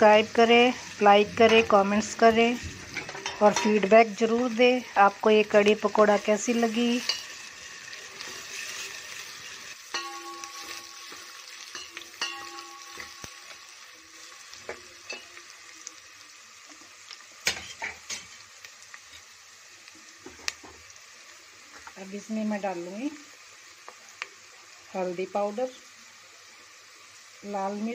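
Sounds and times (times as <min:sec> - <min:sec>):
onion frying in hot oil: 0:00.0 - 0:27.9
metal ladle clinking on pot: 0:09.9 - 0:13.3.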